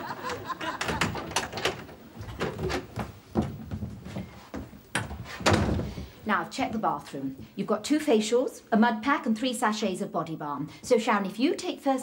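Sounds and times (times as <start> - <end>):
door thudding open: 0.2 - 4.0, 4.6 - 6.1
door knocks and clatters: 0.2 - 6.1.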